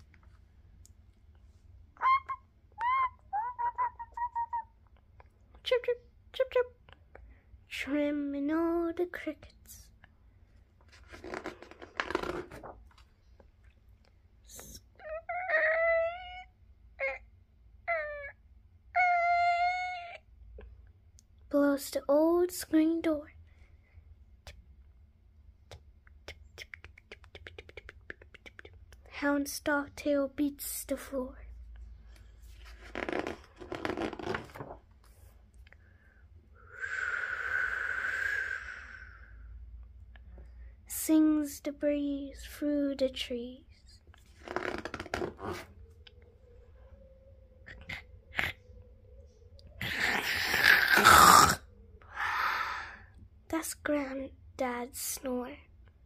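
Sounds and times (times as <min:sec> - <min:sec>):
person squealing: 0:02.0 - 0:04.7
book page turning: 0:10.8 - 0:13.2, 0:32.4 - 0:35.4, 0:44.2 - 0:45.7
person blowing whoosh: 0:36.7 - 0:39.4.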